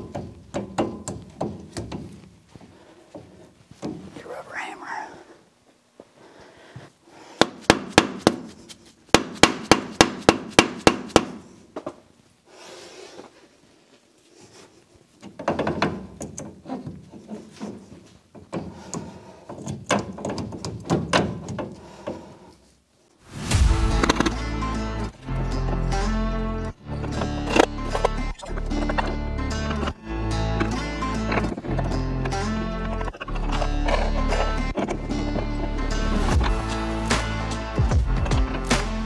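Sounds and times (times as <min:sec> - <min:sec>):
sharp metal knocks: 0:00.0 - 0:02.1
metal scraping and clunking: 0:23.3 - 0:39.0
music: 0:23.3 - 0:39.0.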